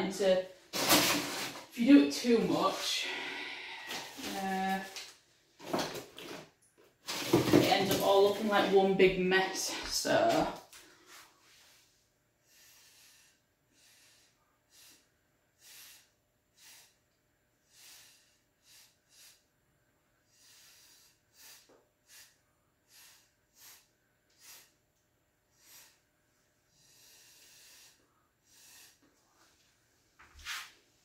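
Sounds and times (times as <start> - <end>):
breath blown through a straw: 3.0 - 4.2, 12.4 - 17.0, 17.6 - 19.5, 20.2 - 24.8, 25.5 - 26.1, 26.7 - 29.1.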